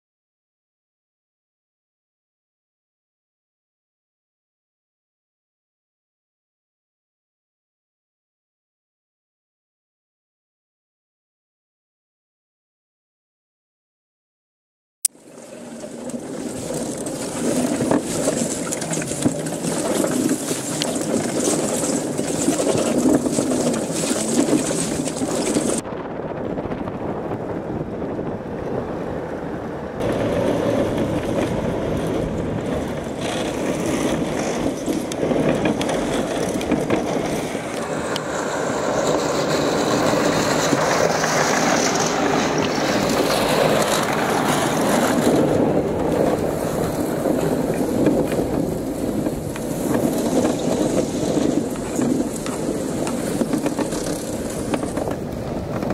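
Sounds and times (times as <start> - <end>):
rubber tracks rumbling: 15.6 - 55.9
wind rushing noise: 16.3 - 55.9.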